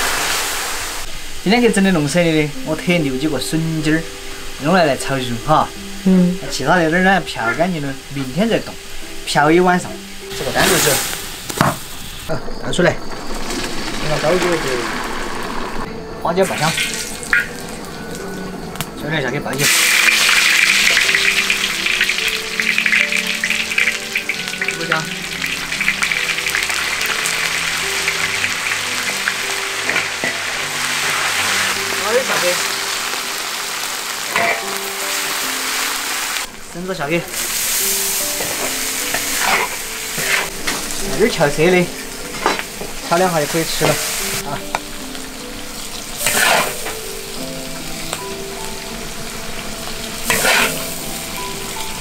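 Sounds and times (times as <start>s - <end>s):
hot oil sizzling in a pan: 0.0s - 12.4s, 13.0s - 52.0s.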